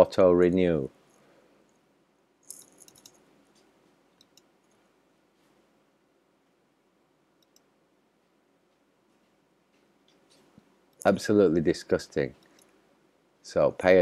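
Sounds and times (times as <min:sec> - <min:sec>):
computer mouse clicks: 0:02.8 - 0:04.8, 0:07.4 - 0:07.7, 0:12.4 - 0:12.8.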